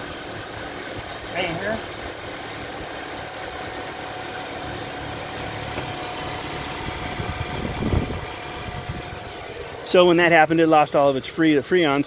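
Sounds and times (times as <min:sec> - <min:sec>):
car engine idling: 0:00.0 - 0:12.0
low thumps: 0:05.6 - 0:06.1.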